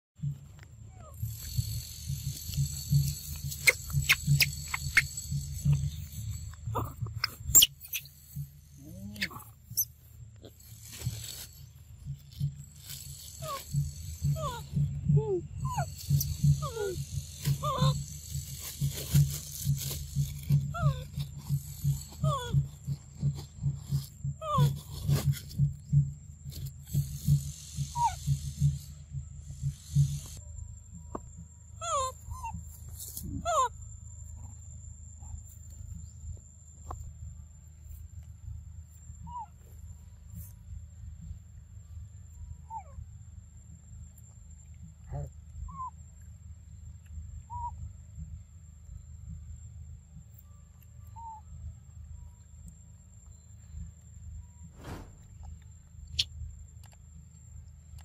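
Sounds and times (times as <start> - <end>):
high-pitched insect drone: 1.1 - 9.9
monkeys squeaking and smacking: 2.2 - 10.9, 12.0 - 25.8, 26.9 - 28.7, 31.8 - 33.8, 39.1 - 39.7, 47.5 - 47.8.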